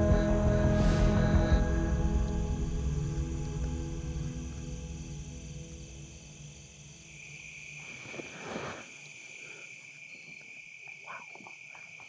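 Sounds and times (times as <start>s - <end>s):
background music: 0.0s - 7.3s
crickets trilling: 0.0s - 12.0s
short rush of noise: 7.9s - 8.9s.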